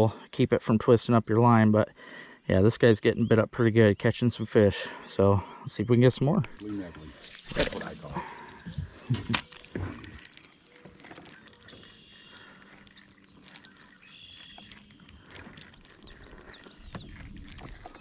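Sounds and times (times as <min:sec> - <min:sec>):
faint bird calls: 0:08.0 - 0:18.0.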